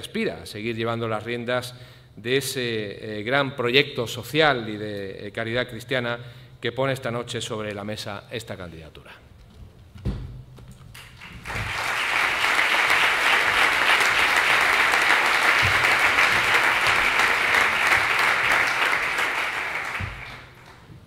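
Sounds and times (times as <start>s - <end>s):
audience applauding: 11.0s - 21.0s.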